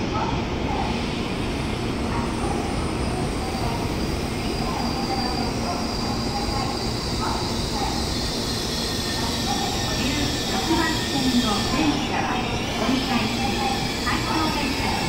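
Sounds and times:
train rolling and braking: 0.0s - 15.0s.

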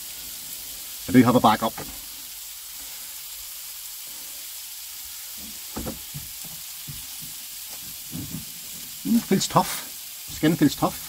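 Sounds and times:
steak sizzling in frying pan: 0.0s - 11.0s
light knocks: 5.8s - 7.0s.

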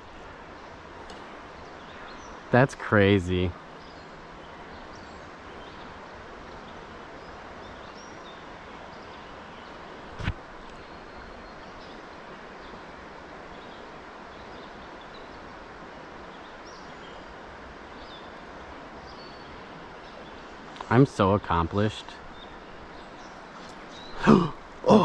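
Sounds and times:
stream water flowing: 0.0s - 25.0s
faint bird chirps: 22.0s - 25.0s.

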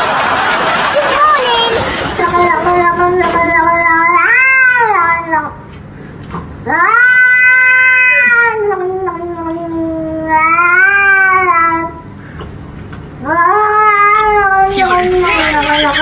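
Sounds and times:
cat yowling: 3.9s - 5.4s, 6.7s - 11.9s, 13.2s - 16.0s.

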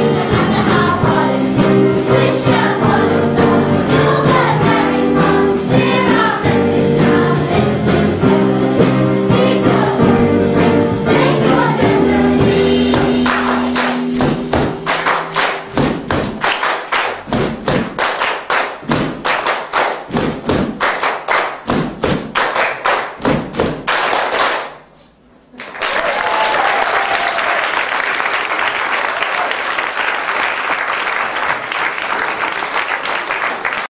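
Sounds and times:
rhythmic claps and thumps: 0.0s - 24.9s
audience applause: 25.6s - 33.9s.

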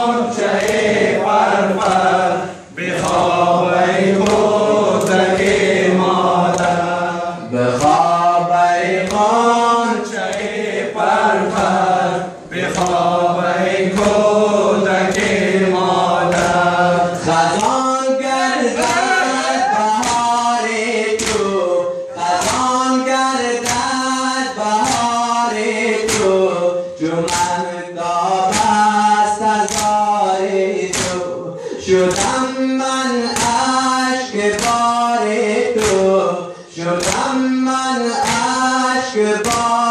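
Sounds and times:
men chanting in unison: 0.0s - 39.9s
chest-beating slaps: 0.4s - 2.2s, 2.8s - 3.4s, 4.2s - 5.8s, 6.4s - 6.8s, 8.9s - 9.3s, 12.6s - 13.2s, 13.9s - 14.4s, 15.0s - 15.5s, 16.2s - 16.8s, 18.8s - 20.5s, 21.1s - 21.6s, 22.2s - 22.8s, 23.6s - 24.0s, 24.8s - 25.2s, 25.9s - 26.4s, 27.2s - 27.6s, 28.3s - 30.2s, 30.8s - 31.4s, 32.0s - 32.5s, 33.2s - 35.0s, 35.6s - 36.2s, 37.0s - 37.4s, 38.2s - 38.7s, 39.4s - 39.9s.

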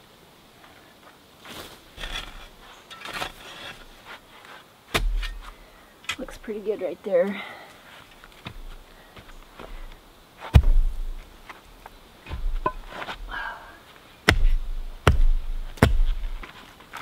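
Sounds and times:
gritty scrape: 1.4s - 6.4s, 9.7s - 13.4s, 14.3s - 17.0s
axe strikes: 4.9s - 5.5s, 10.5s - 11.1s, 14.3s - 16.3s
concrete paver knocking down: 12.3s - 13.4s.

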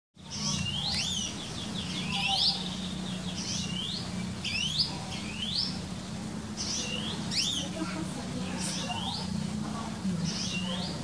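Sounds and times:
low hum: 0.2s - 11.0s
songbird whistling: 1.9s - 5.8s.

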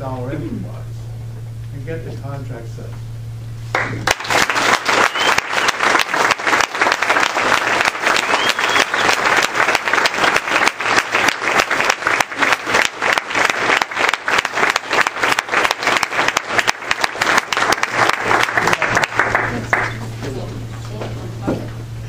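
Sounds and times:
audience applauding: 3.7s - 20.0s.

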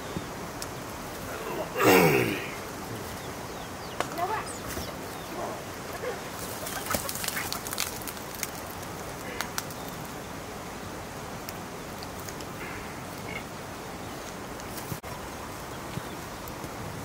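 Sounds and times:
birds calling: 0.0s - 8.2s.

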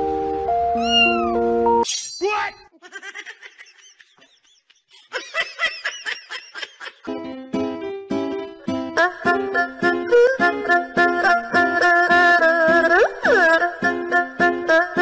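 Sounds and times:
background music: 0.0s - 1.9s, 7.0s - 15.0s
cat crying: 0.8s - 1.4s.

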